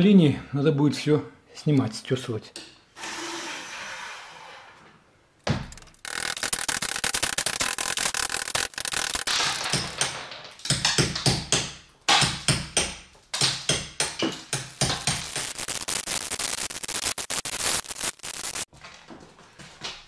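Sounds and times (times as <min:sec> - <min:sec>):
crumbling debris: 0:05.5 - 0:10.4.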